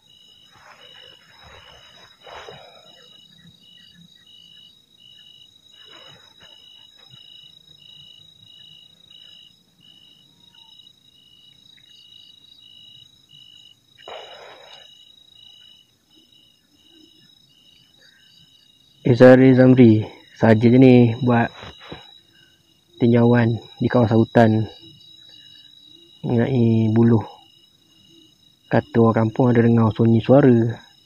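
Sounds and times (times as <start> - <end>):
insect chirping: 0.0 - 31.0
insects droning: 0.0 - 31.0
footsteps in undergrowth: 0.4 - 2.4.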